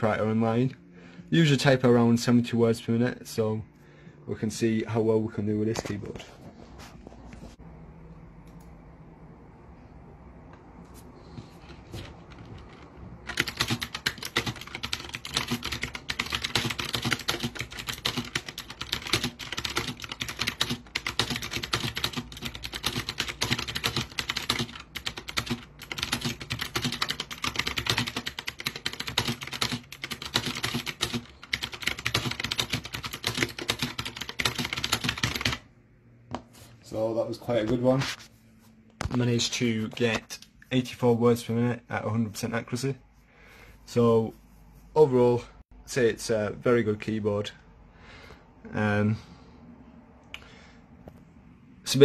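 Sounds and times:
fast typing on mechanical keyboard: 12.0s - 35.6s.

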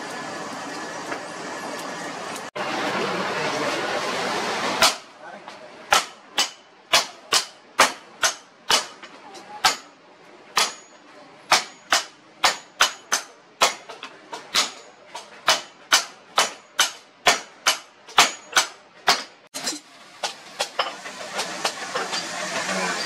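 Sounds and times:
hammer striking steel on anvil: 4.8s - 5.1s, 5.9s - 22.8s.

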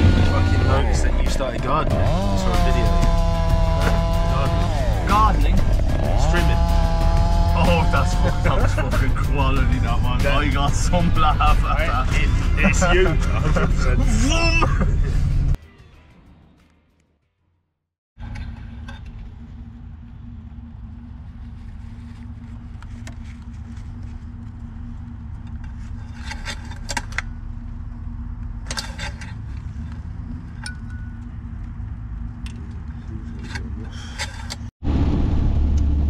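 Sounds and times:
van engine running: 0.0s - 15.6s, 18.2s - 36.0s
dipstick metallic clinks: 30.6s - 31.3s.

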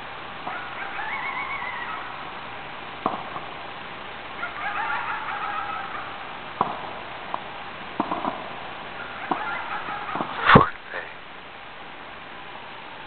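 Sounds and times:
distant fireworks popping: 2.9s - 3.6s, 6.5s - 11.0s.

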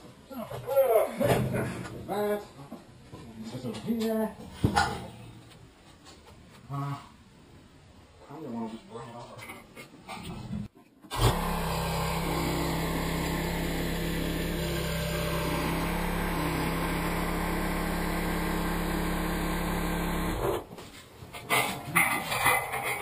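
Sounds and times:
tractor engine running: 11.1s - 20.7s.

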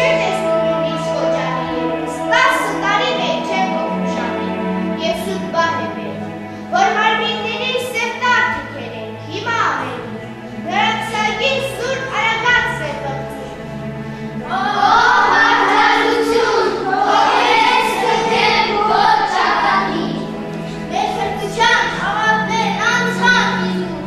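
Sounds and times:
choir singing slow melody: 14.2s - 21.0s.

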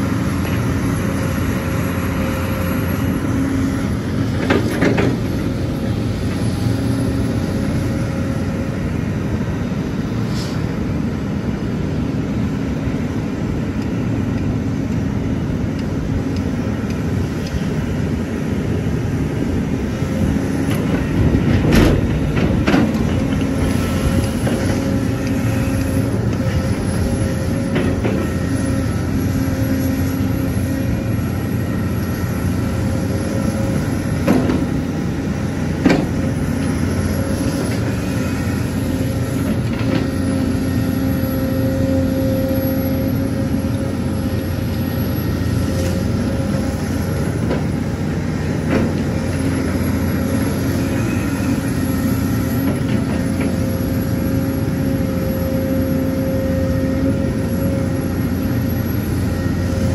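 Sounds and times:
excavator diesel engine running: 0.0s - 59.9s.

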